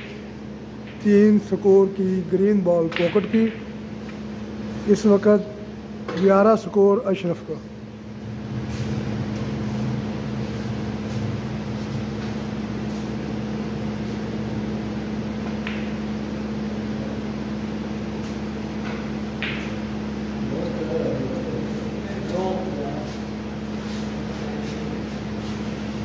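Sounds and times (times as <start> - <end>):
snooker balls clicking: 0.0 - 1.1, 2.7 - 4.2, 15.4 - 16.2, 18.8 - 20.0
electric fan humming: 0.0 - 26.0.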